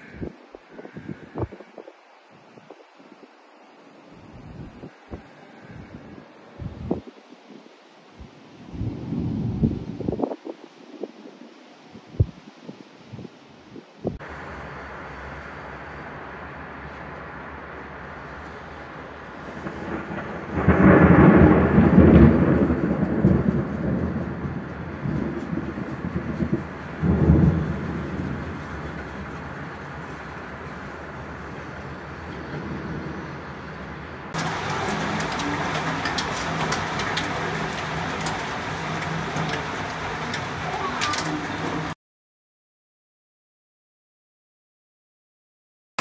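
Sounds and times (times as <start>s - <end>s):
thunder rumbling: 8.2s - 11.0s, 14.1s - 42.0s
steady low hum: 14.2s - 39.5s
hail and rain on paving: 14.2s - 42.0s.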